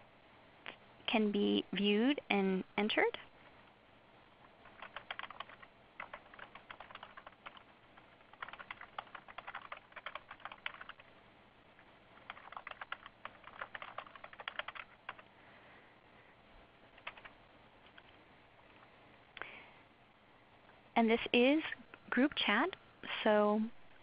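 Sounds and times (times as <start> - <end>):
typing on a keyboard: 4.6 - 11.1, 12.2 - 15.3, 17.0 - 18.1.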